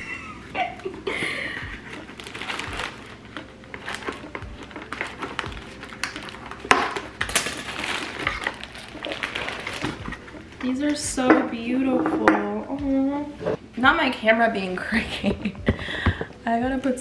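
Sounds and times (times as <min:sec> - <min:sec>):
paper and cardboard rustling: 0:01.8 - 0:10.3.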